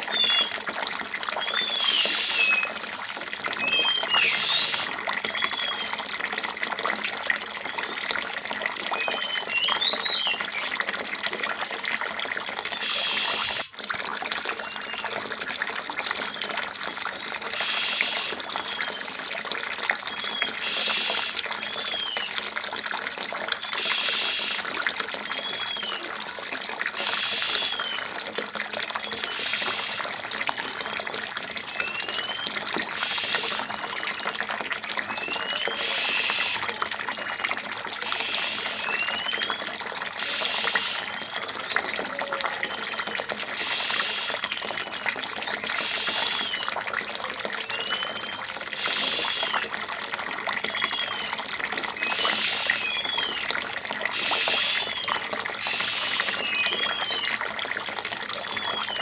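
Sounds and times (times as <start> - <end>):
water trickling into pool: 0.0 - 59.0
whistled chirps: 1.4 - 2.7, 3.6 - 5.9, 35.2 - 36.6, 47.7 - 49.6.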